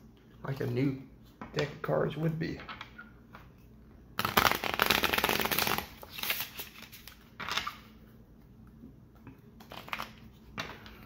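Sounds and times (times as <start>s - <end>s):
playing cards being shuffled: 4.2s - 8.0s.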